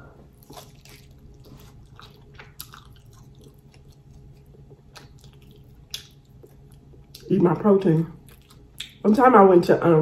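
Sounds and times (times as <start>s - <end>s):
steady low hum: 0.0s - 10.0s
wet chewing sounds: 0.2s - 7.3s, 8.2s - 9.0s.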